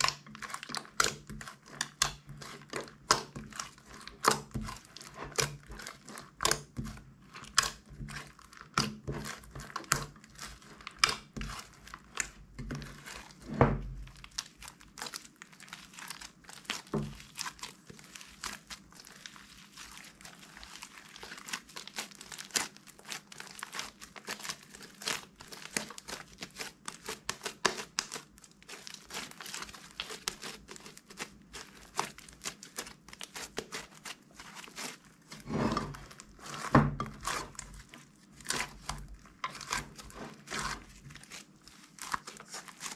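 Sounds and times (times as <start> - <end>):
sticky slime clicks and crackles: 0.0 - 13.3.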